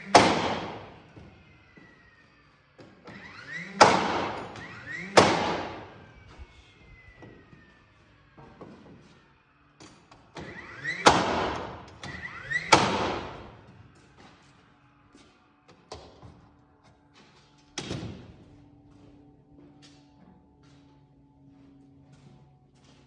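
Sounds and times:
nail gun shots echoing: 0:00.0 - 0:01.0, 0:03.8 - 0:06.0, 0:11.0 - 0:13.6
nailer motor whine: 0:00.0 - 0:22.9.

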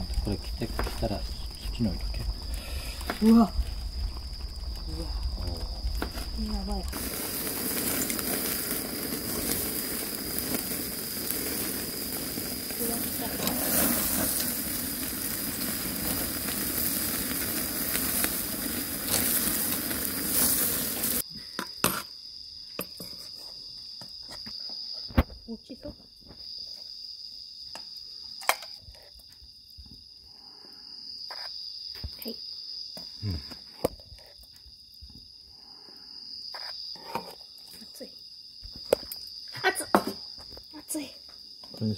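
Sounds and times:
meat sizzling: 0:00.0 - 0:21.2
wood fire crackling: 0:00.0 - 0:21.2
crickets chirping: 0:00.0 - 0:41.9.

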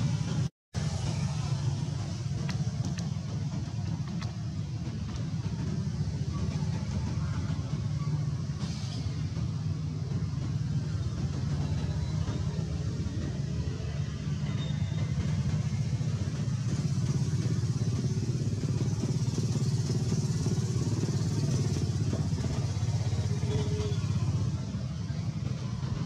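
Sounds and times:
steady low rumble: 0:00.0 - 0:14.3, 0:24.0 - 0:26.0.

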